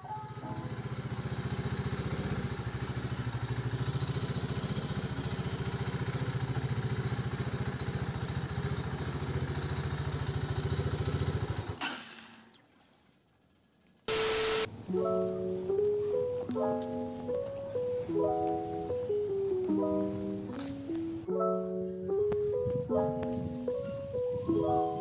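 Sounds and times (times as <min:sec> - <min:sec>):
motorcycle engine idling: 0:00.6 - 0:11.8.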